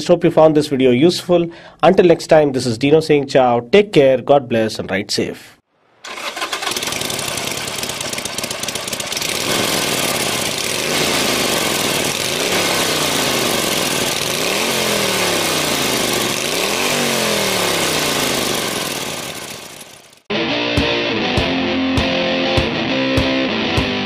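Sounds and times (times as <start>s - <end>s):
motorcycle engine revving: 6.0s - 20.3s.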